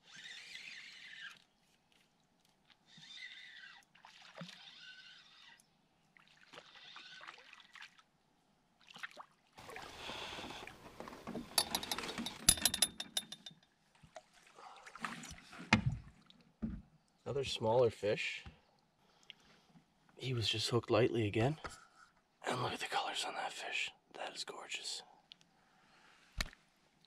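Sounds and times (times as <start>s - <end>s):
fishing reel winding: 0.0s - 1.4s, 11.6s - 13.5s
fish splashing: 0.0s - 8.1s, 8.8s - 11.5s
clicks and knocks: 10.9s - 13.6s.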